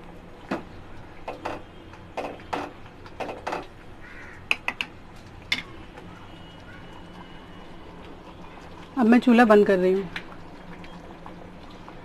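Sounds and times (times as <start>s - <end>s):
crow cawing: 4.0s - 4.6s.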